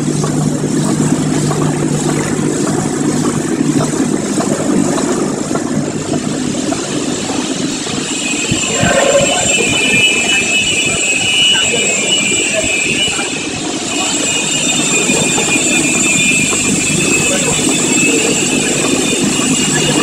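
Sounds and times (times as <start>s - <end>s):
high steady tones: 8.1s - 11.2s.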